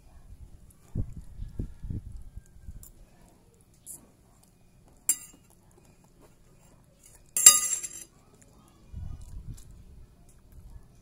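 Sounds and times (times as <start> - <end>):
metal spoon clinking on plate: 5.1 - 5.5, 7.4 - 8.1.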